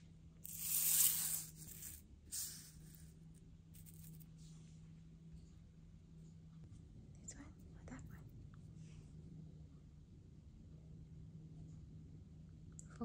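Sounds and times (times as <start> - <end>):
faint low hum: 0.0 - 13.0
paper rustling on tile floor: 0.5 - 3.0.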